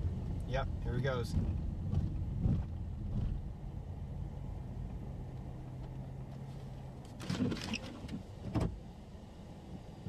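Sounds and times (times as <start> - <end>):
vehicle engine idling: 0.0 - 7.2.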